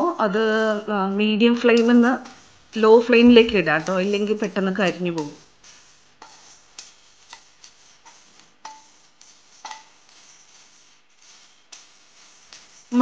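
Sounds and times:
spatula scraping pan: 0:00.0 - 0:13.0.

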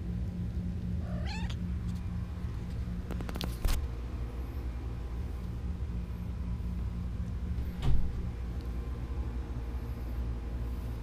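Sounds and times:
steady low hum: 0:00.0 - 0:11.0
kitten mewing: 0:01.0 - 0:01.7.

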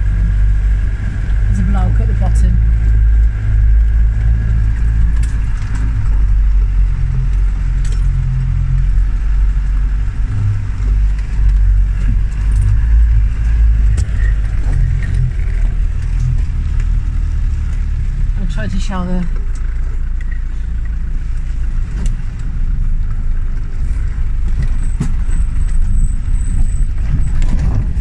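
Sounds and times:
vehicle engine under load: 0:00.0 - 0:28.0
vehicle rattles and knocks: 0:00.0 - 0:28.0.

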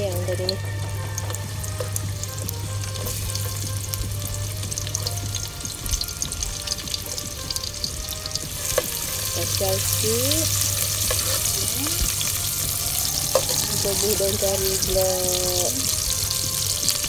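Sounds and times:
onions sizzling in hot oil: 0:00.0 - 0:17.0.

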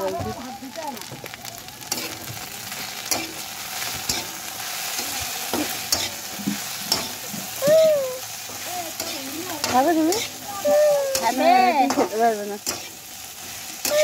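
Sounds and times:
okra sizzling in oil: 0:00.0 - 0:14.0
metal spatula scraping pan: 0:08.5 - 0:10.4.

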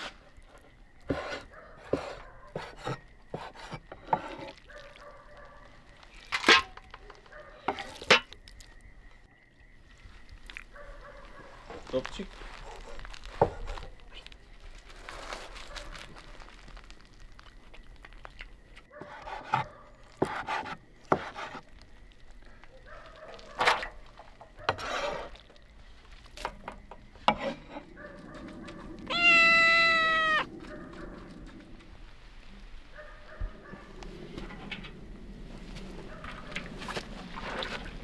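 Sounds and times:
cat meowing: 0:29.1 - 0:30.5.

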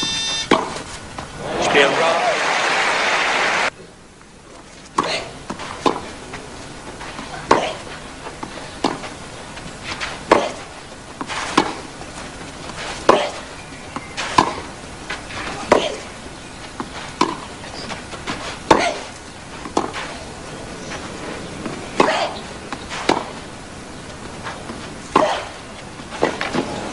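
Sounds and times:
tennis ball bouncing: 0:00.5 - 0:01.3, 0:05.0 - 0:06.1, 0:07.1 - 0:09.1, 0:09.9 - 0:23.5, 0:24.1 - 0:26.8
tennis ball struck by racket: 0:00.5 - 0:01.3, 0:10.0 - 0:11.9, 0:12.6 - 0:13.5, 0:14.1 - 0:14.7, 0:16.8 - 0:17.5, 0:18.2 - 0:20.2, 0:21.6 - 0:23.5, 0:24.7 - 0:25.6.

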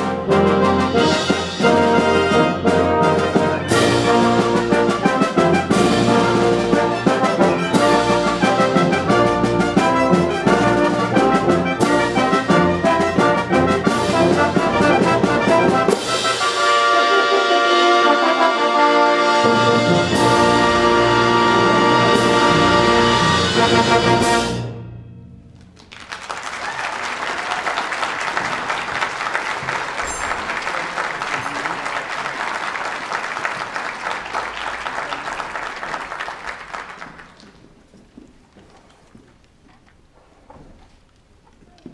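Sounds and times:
concert band playing fanfare: 0:00.0 - 0:24.7, 0:25.8 - 0:37.4
audience applauding: 0:25.7 - 0:37.8.

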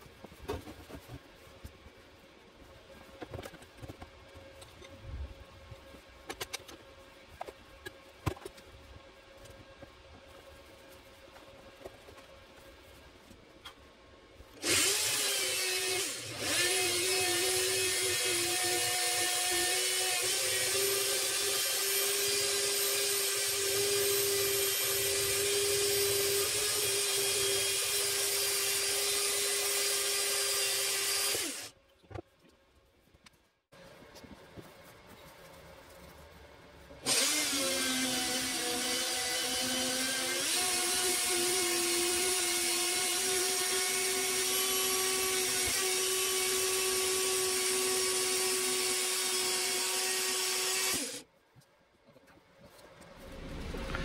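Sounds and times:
band saw cutting steel: 0:14.6 - 0:31.7, 0:37.0 - 0:51.2
motor spinning down: 0:53.2 - 0:54.0.

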